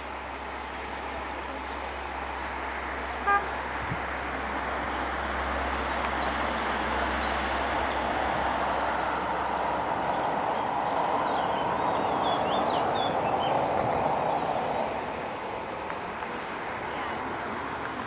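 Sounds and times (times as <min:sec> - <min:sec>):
steady outdoor rushing noise: 0:00.0 - 0:18.0
vehicle horn toot: 0:03.2 - 0:03.6.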